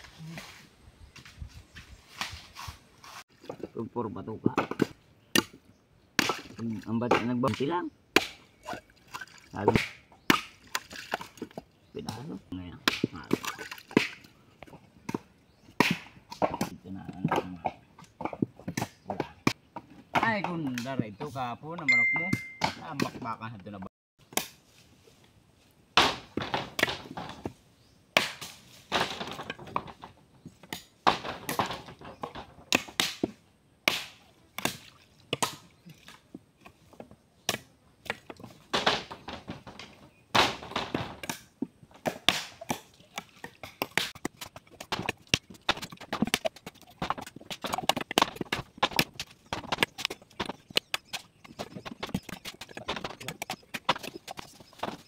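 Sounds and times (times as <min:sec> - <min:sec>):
knives chopping coconuts: 0:04.4 - 0:05.6, 0:06.2 - 0:08.4, 0:09.6 - 0:11.2, 0:12.0 - 0:14.2, 0:15.1 - 0:21.0, 0:28.1 - 0:30.0, 0:30.6 - 0:35.7, 0:37.4 - 0:39.5, 0:40.3 - 0:55.0.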